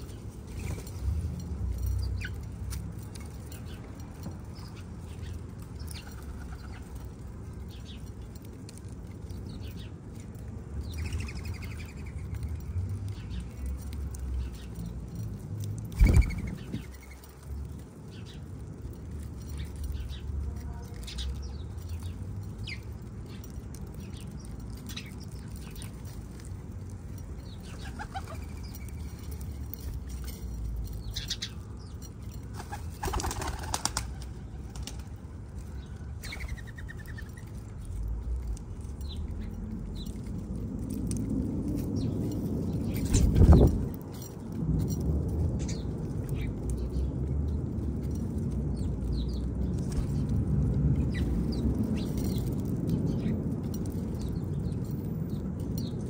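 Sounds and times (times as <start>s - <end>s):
bird wings flapping: 32.6s - 35.1s
steady low rumble: 34.0s - 56.0s.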